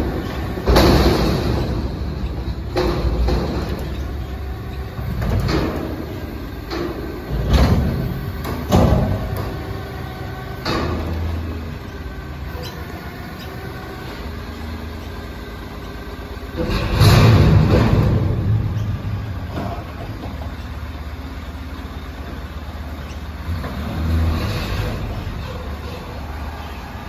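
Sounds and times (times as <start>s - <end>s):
metal clunks and bangs: 0.0s - 14.6s, 16.4s - 21.1s
garbage truck engine and hydraulics: 0.0s - 27.0s.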